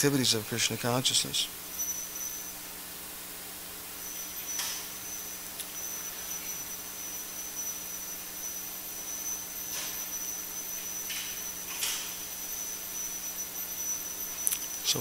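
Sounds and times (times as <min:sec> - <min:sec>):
high-pitched electronic whine: 0:00.0 - 0:15.0
low hum: 0:00.0 - 0:15.0.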